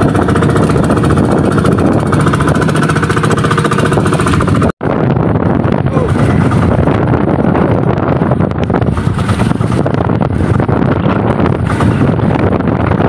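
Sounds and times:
boat engine running: 0.0 - 13.0
wind buffeting microphone: 0.0 - 13.0
water rushing past hull: 6.0 - 13.0.

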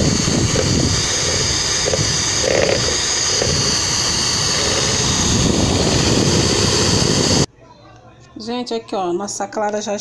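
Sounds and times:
electric mixer running: 0.0 - 7.5.

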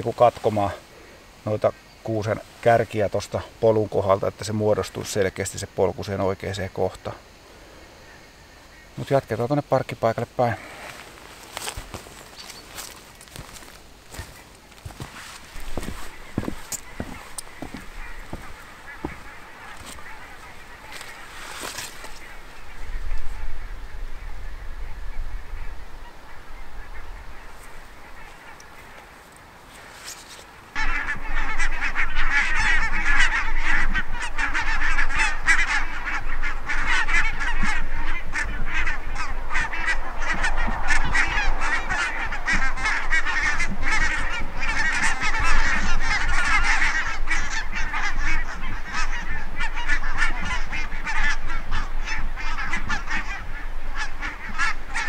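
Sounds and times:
geese honking: 7.0 - 55.0.

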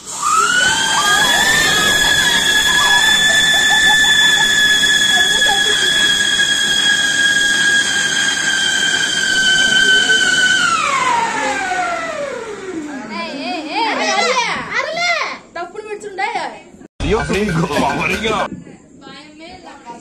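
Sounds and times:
firework high whistle: 0.0 - 12.3.

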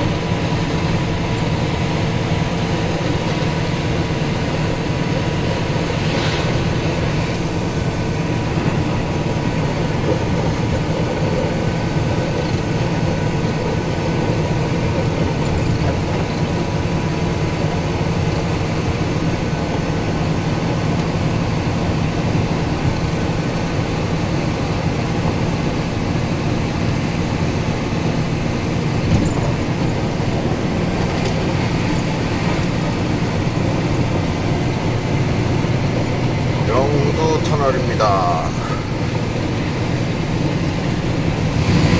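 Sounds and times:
diesel engine rumble in cab: 0.0 - 41.9.

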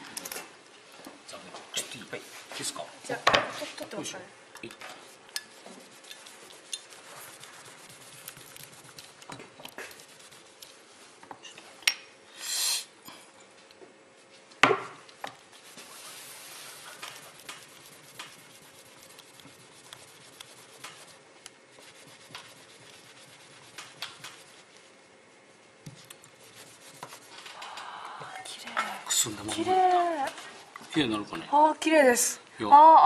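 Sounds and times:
cloth rubbing on putty: 5.5 - 9.2, 9.8 - 10.6, 15.5 - 27.4.

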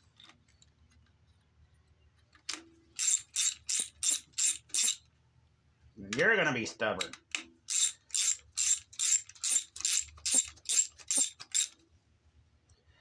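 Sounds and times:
ratchet wrench clicking: 3.0 - 5.0, 7.0 - 11.8.

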